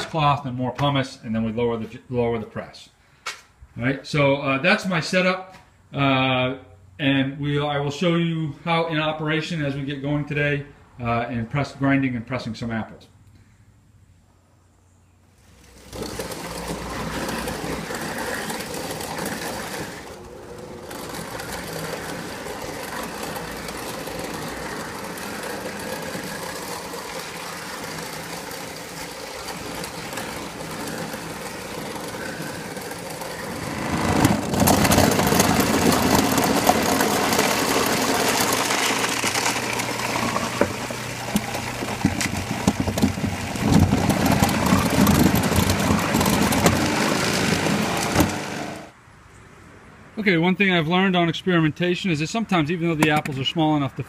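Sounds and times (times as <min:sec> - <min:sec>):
garbage disposal grinding apples: 0:15.4 - 0:48.9.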